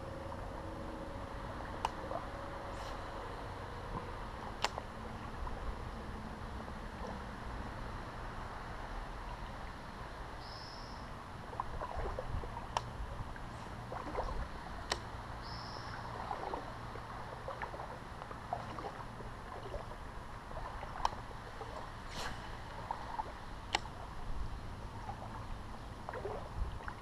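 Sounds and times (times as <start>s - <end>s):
water splashing against hull: 0.0s - 7.5s, 11.1s - 27.0s
water and air background: 0.0s - 27.0s.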